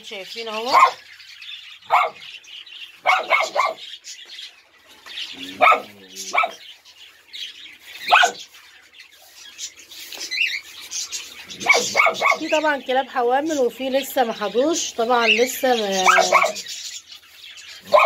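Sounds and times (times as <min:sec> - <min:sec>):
birds chirping faintly: 0:00.0 - 0:18.0
small dogs yapping: 0:00.7 - 0:01.0, 0:01.9 - 0:02.3, 0:03.0 - 0:03.9, 0:05.4 - 0:06.7, 0:08.0 - 0:08.5, 0:11.5 - 0:12.6, 0:16.0 - 0:16.7, 0:17.8 - 0:18.0.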